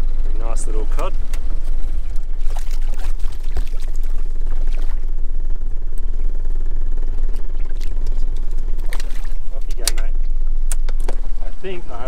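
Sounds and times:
low rumble: 0:00.0 - 0:12.0
water splashing and sloshing: 0:01.3 - 0:05.2, 0:07.2 - 0:10.0.

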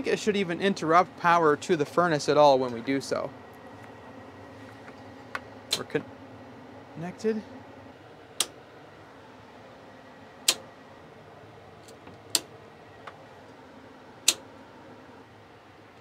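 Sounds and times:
circuit breaker switches clicking: 0:05.4 - 0:06.0, 0:08.4 - 0:08.6, 0:10.4 - 0:10.7, 0:11.8 - 0:13.2, 0:14.2 - 0:14.5.

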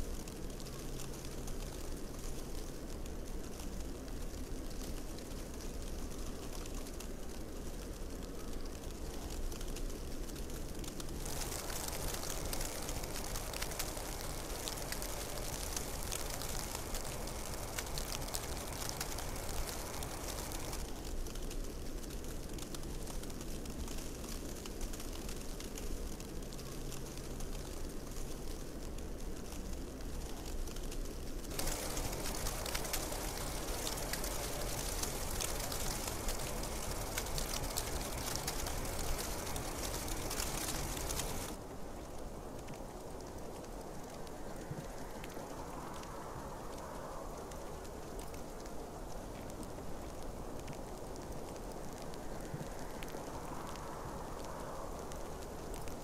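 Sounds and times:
snow ticking: 0:00.0 - 0:56.0
snowfall hiss: 0:00.0 - 0:56.0
snow ticking as it lands: 0:31.4 - 0:41.6
steady low rumble: 0:31.4 - 0:56.0.

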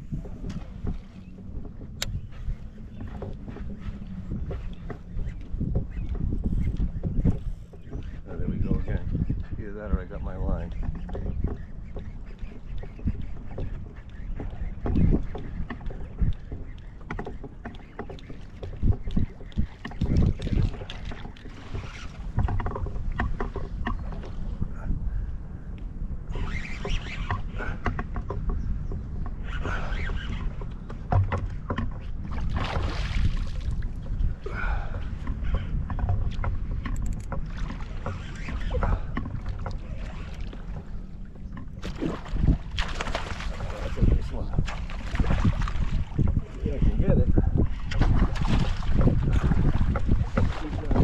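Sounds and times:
water lapping against plastic hull: 0:00.0 - 0:25.2, 0:26.2 - 0:51.0
wind buffeting microphone: 0:00.0 - 0:51.0
knocks against boat: 0:31.0 - 0:32.9.

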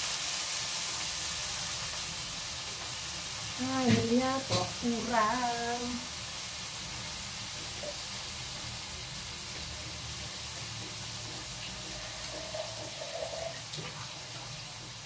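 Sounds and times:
tap water filling jug: 0:10.6 - 0:15.0.

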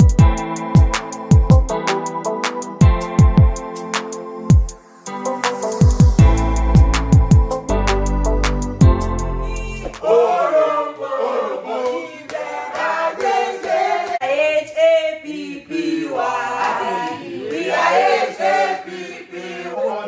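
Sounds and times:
group singing in chorus: 0:09.8 - 0:20.0.

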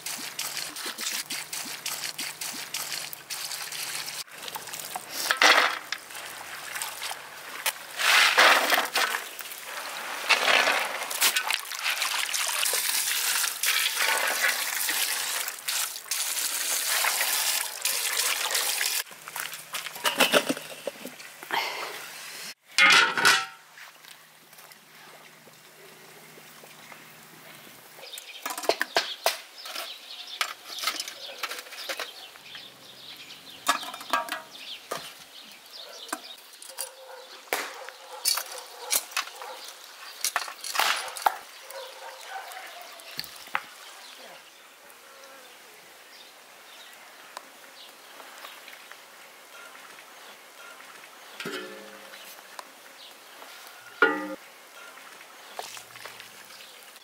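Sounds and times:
metal pot lid clanking: 0:22.8 - 0:23.6, 0:33.7 - 0:34.5, 0:51.4 - 0:52.2, 0:54.0 - 0:54.4
birds chirping: 0:25.3 - 0:40.3.

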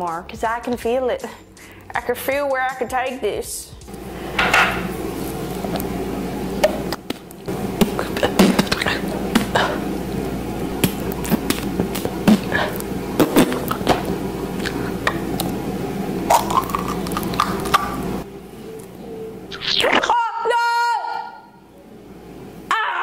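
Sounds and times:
steady low hum: 0:03.8 - 0:20.2.

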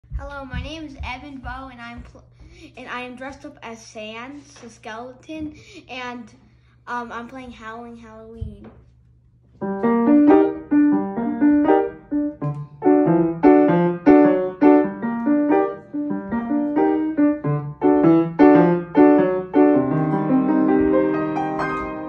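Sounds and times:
solo upright piano melody: 0:09.6 - 0:22.0.

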